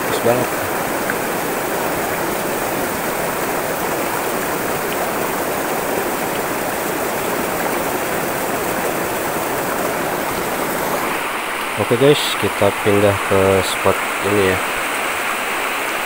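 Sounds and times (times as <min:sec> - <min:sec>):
river rippling over stones: 0:00.0 - 0:16.0.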